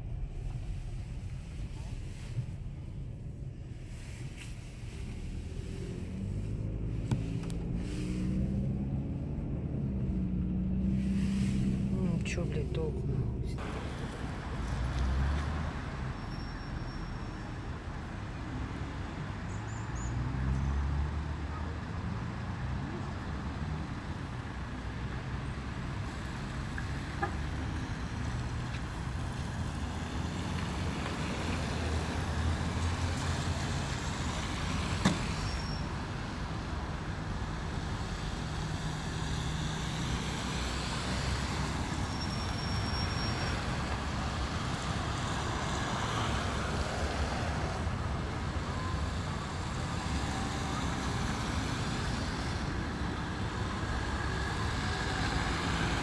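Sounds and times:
vehicle engines running: 0:00.0 - 0:16.4.

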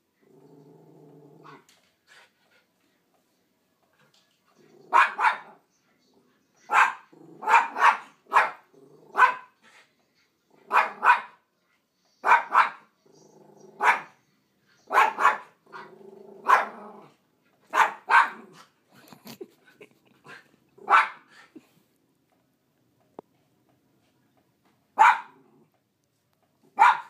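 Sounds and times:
dog barking: 0:04.9 - 0:05.6, 0:06.7 - 0:09.6, 0:10.7 - 0:11.4, 0:12.2 - 0:12.9, 0:13.8 - 0:14.2, 0:14.9 - 0:16.8, 0:17.7 - 0:18.6, 0:20.8 - 0:21.3, 0:25.0 - 0:25.4, 0:26.8 - 0:27.0.

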